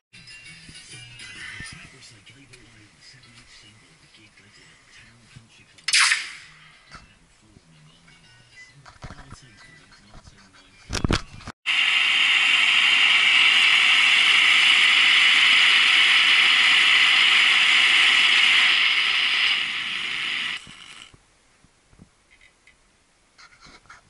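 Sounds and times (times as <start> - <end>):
blowtorch hissing: 11.7 - 21.1.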